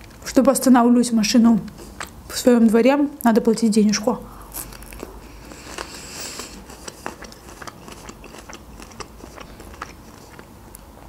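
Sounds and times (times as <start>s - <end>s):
chewing crunchy pepper: 1.6s - 2.4s, 4.4s - 11.0s.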